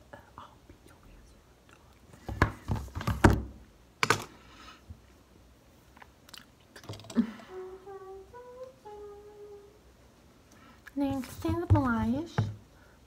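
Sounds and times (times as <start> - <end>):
woman humming: 6.9 - 9.8.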